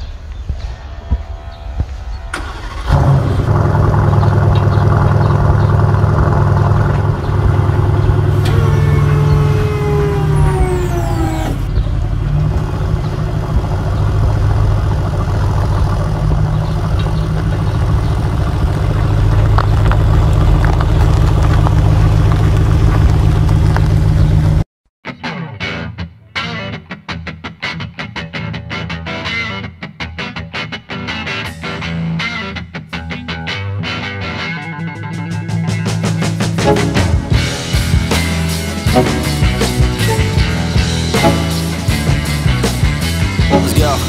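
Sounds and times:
large vehicle engine droning: 1.5s - 24.6s, 35.5s - 44.0s.

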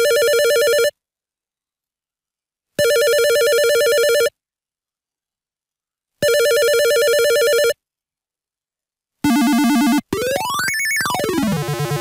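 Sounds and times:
synthesized telephone ring: 2.8s - 4.3s, 6.2s - 7.8s.

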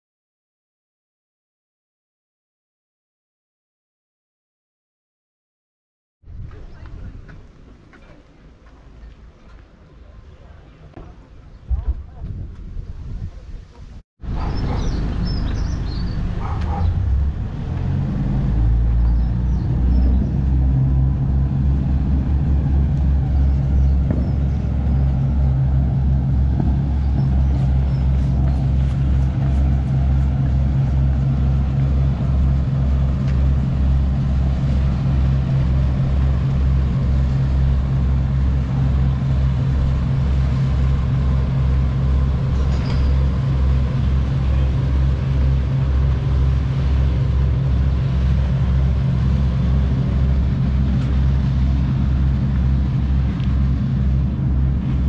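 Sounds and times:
diesel engines starting and running: 14.2s - 55.0s.

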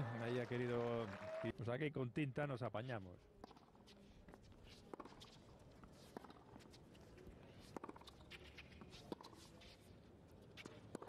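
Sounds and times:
faint footsteps on court: 3.4s - 11.0s
tennis ball bouncing: 4.9s - 6.7s, 7.6s - 9.4s, 10.6s - 11.0s.

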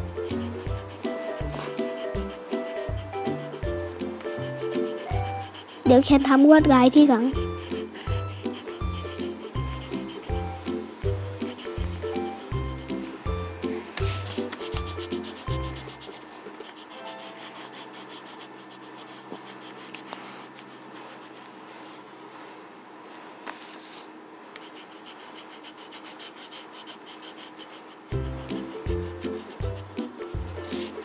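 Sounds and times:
pencil scratching on paper: 0.2s - 3.7s, 4.3s - 6.6s, 7.2s - 10.6s, 11.4s - 13.0s, 14.0s - 22.3s, 24.6s - 31.0s.

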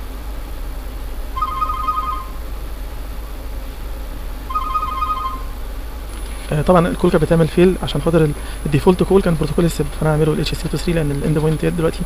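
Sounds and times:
steady low hum: 0.0s - 12.0s
telephone ringing: 1.4s - 2.4s, 4.5s - 5.6s.

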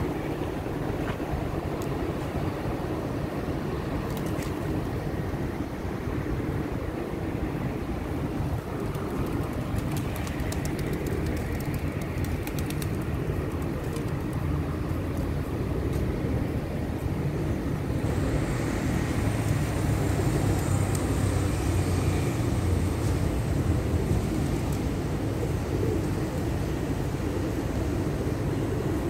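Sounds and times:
pigeons pecking: 8.9s - 14.5s
pigeons cooing: 23.8s - 29.0s.

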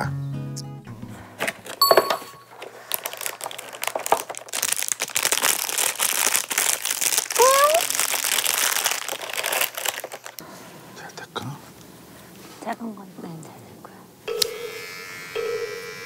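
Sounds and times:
paper and packaging crinkling: 1.4s - 1.8s, 2.5s - 10.4s
short chime: 1.8s - 2.5s.

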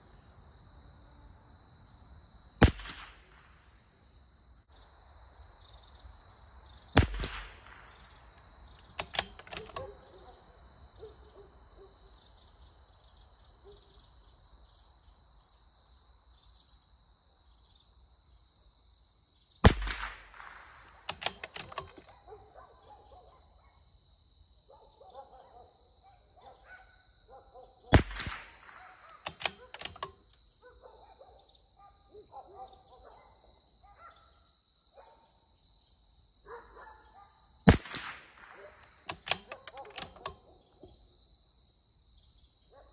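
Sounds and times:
rifle shots cracking: 2.6s - 3.5s, 7.0s - 10.0s, 19.6s - 22.2s, 27.9s - 30.2s, 37.7s - 40.4s
metallic clicks of rifle bolt: 7.0s - 10.4s, 19.7s - 22.3s, 28.0s - 30.5s, 37.7s - 40.5s.

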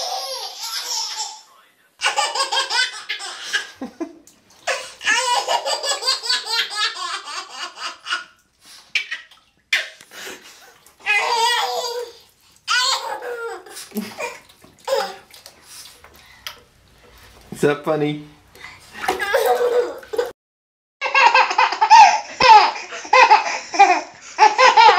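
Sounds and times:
baby laughing: 0.0s - 3.9s, 4.6s - 10.0s, 11.0s - 15.3s, 19.0s - 20.3s, 21.0s - 24.9s.

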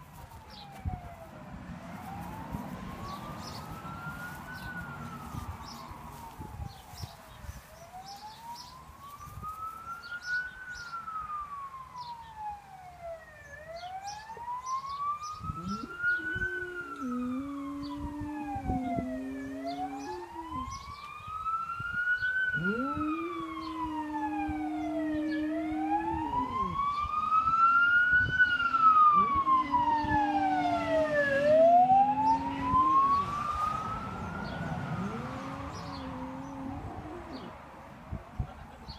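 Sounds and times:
fire truck siren wailing: 0.0s - 38.9s
dog howling: 15.6s - 20.8s, 22.5s - 26.9s, 29.1s - 37.6s.

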